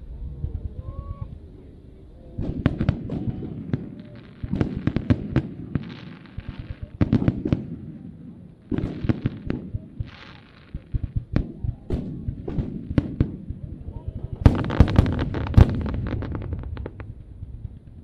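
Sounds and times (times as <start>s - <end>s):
firework hiss: 0.0s - 13.5s
firework bangs: 2.3s - 18.0s.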